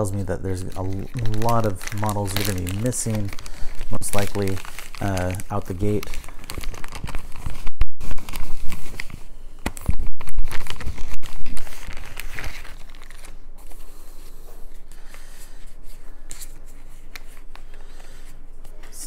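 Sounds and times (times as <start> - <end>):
plastic packaging tearing and crackling: 0.0 - 13.5
plastic packaging rustling: 0.0 - 19.0.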